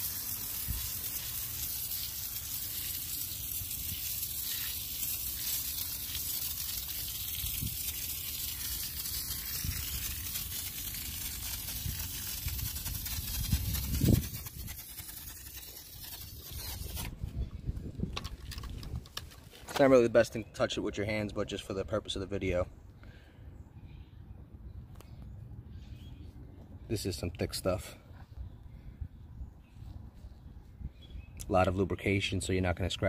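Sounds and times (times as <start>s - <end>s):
foam sprayer hissing: 0.0s - 17.1s.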